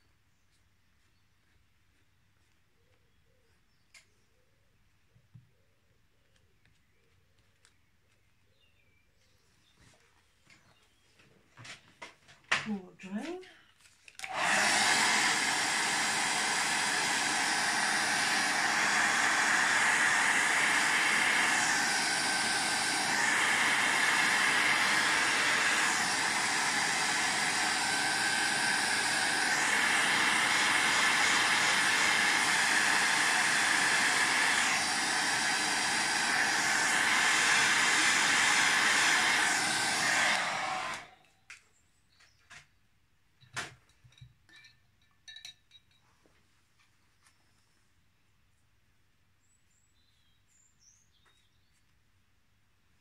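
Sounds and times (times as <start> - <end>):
hot-air dryer blowing: 14.2 - 41.3.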